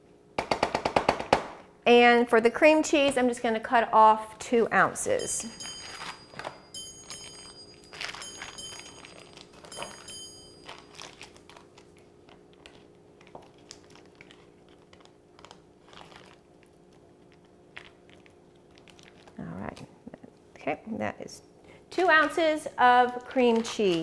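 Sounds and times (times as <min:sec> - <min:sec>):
faint steady hum: 0:01.6 - 0:24.0
foil wrapper crinkling: 0:07.4 - 0:19.4, 0:23.0 - 0:24.0.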